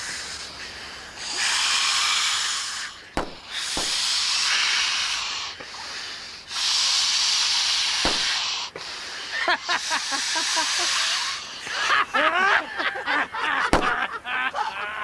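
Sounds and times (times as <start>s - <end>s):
air blown into balloons: 1.2s - 11.8s.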